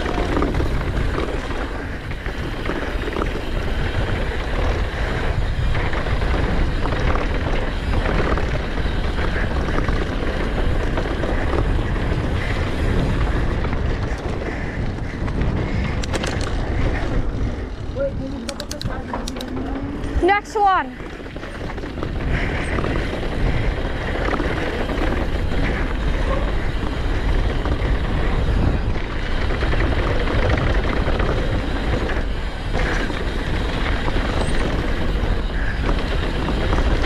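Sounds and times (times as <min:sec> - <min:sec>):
tyres rolling over dirt: 0:00.0 - 0:37.0
wind rushing on microphone: 0:00.0 - 0:37.0
sharp clicks: 0:18.3 - 0:20.2.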